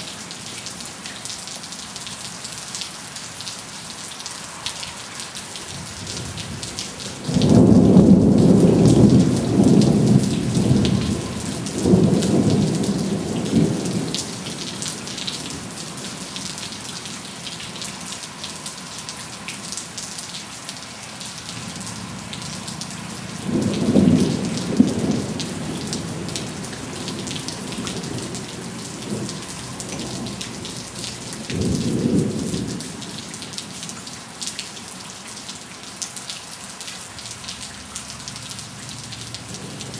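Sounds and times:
heavy rain: 0.0s - 39.9s
thunder rumbling: 5.7s - 16.4s, 23.3s - 33.2s.

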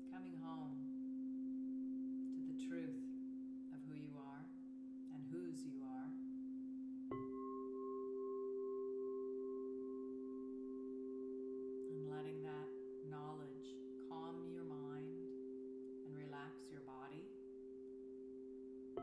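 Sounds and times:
singing bowl ringing: 0.7s - 2.4s, 6.2s - 16.5s, 17.2s - 19.0s
woman singing wordless tone: 11.9s - 15.3s.

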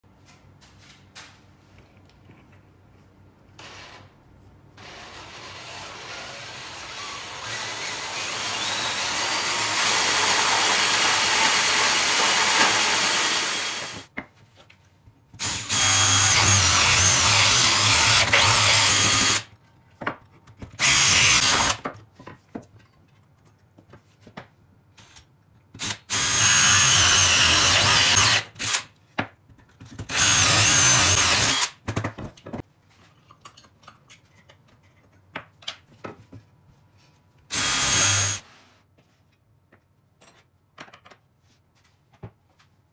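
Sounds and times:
cordless drill running: 4.8s - 14.0s, 15.4s - 19.4s, 25.8s - 28.8s, 30.1s - 31.7s, 37.5s - 38.4s.

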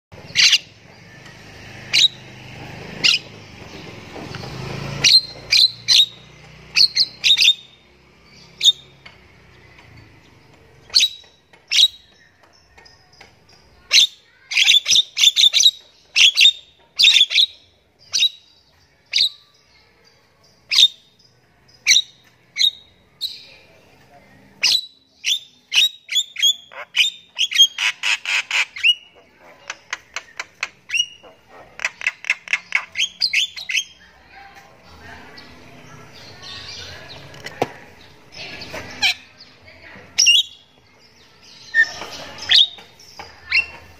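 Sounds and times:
bird whistling song: 5.0s - 6.2s, 10.9s - 12.1s, 24.6s - 29.1s
bird chattering: 13.0s - 19.5s, 24.5s - 34.4s, 35.3s - 43.9s.

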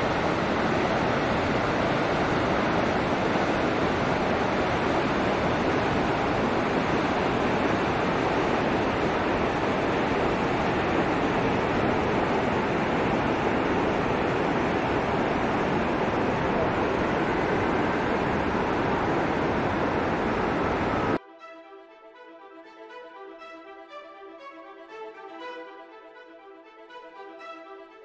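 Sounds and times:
waterfall rushing: 0.0s - 21.2s.

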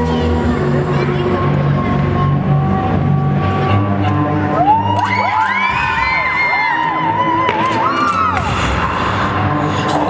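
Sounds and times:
dance music: 0.0s - 10.0s
audience whooping and cheering: 4.5s - 8.6s.

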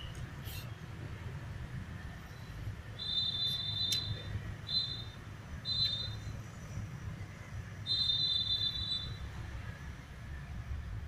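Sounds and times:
high-pitched whistle-like tone: 3.0s - 6.3s, 7.8s - 9.3s.

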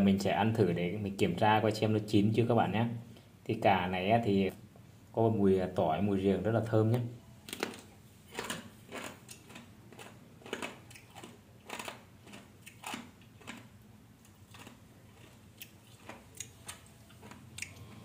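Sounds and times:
person chewing crunchy pickled eggplant: 7.5s - 18.0s.

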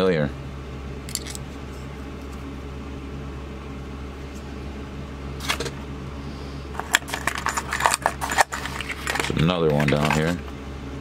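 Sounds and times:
low machine hum: 0.0s - 11.0s
handling noise: 6.7s - 10.6s.

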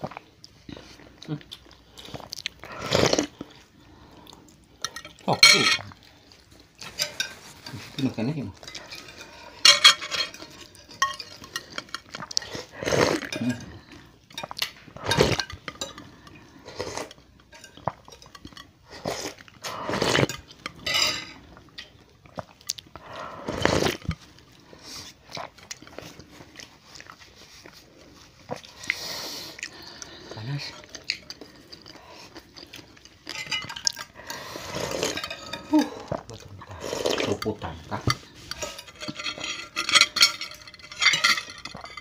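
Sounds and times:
noodles slurped: 0.9s - 4.6s, 11.4s - 15.5s, 22.3s - 33.4s, 34.1s - 38.9s
cutlery clinking against bowls: 4.8s - 6.0s, 6.8s - 12.4s, 14.3s - 16.4s, 17.4s - 18.8s, 20.2s - 22.0s, 33.0s - 36.4s, 37.1s - 42.0s.

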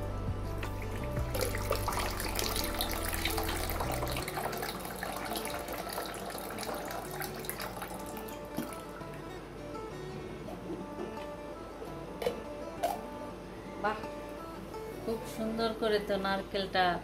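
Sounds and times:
coconut water pouring into bowl: 0.6s - 9.2s.

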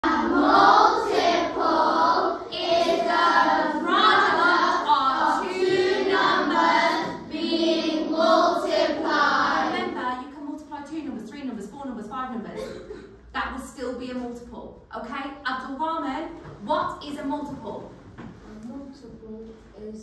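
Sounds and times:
children singing in unison: 0.0s - 10.0s.

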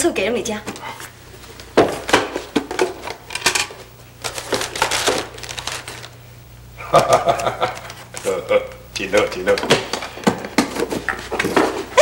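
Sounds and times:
small hard objects clattering: 2.0s - 6.1s.

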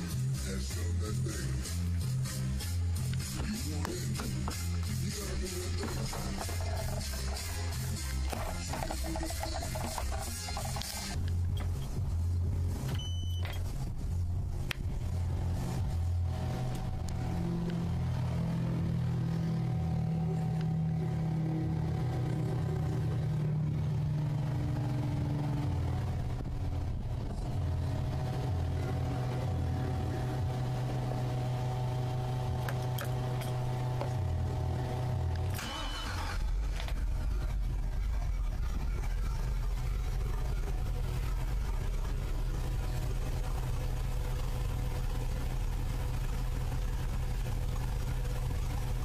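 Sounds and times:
boat engine idling hum: 3.8s - 35.5s, 36.6s - 49.0s.

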